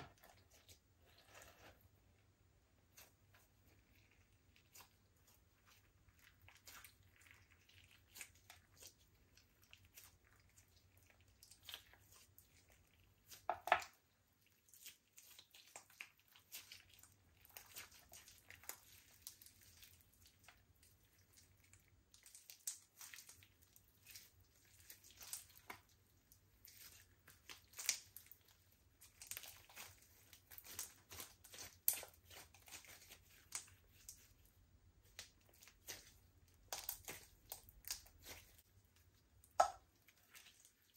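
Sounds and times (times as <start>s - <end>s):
slime squelch: 0.0s - 40.9s.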